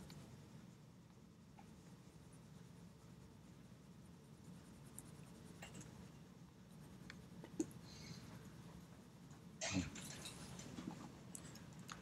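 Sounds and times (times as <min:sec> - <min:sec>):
low room hum: 0:00.0 - 0:12.0
pencil scratching on paper: 0:01.7 - 0:08.6.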